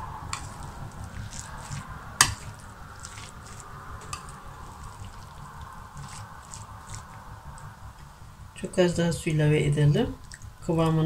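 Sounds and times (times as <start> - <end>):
spoon squishing and scraping mix: 0.0 - 8.3, 10.2 - 10.6.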